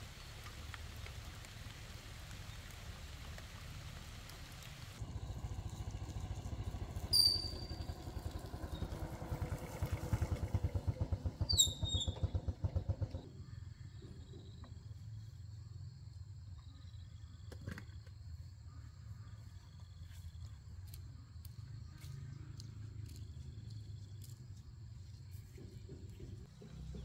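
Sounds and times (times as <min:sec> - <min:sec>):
rain patter: 0:00.0 - 0:07.2, 0:08.4 - 0:10.7
motorcycle engine running: 0:04.9 - 0:14.2.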